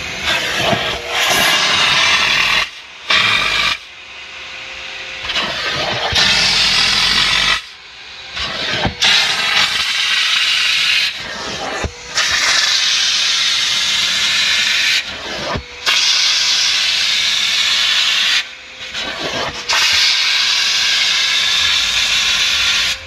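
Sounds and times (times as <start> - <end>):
steam cleaner jet hissing: 0.0 - 4.0, 5.2 - 23.0
steady machine hum: 0.0 - 15.9.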